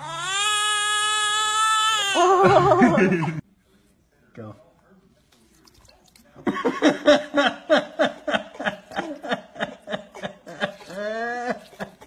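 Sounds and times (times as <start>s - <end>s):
person laughing in bursts: 2.4s - 3.4s.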